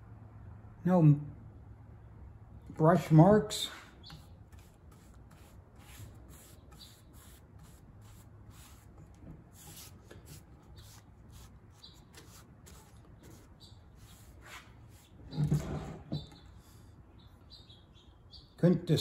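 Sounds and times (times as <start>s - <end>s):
paintbrush swishing on board: 3.7s - 15.7s.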